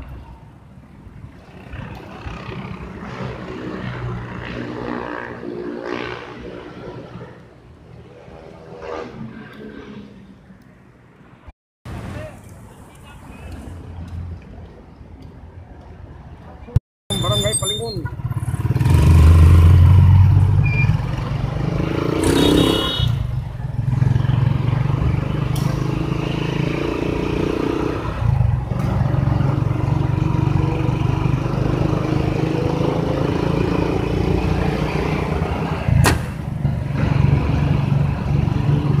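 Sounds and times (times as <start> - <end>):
road and traffic noise: 0.0 - 39.0.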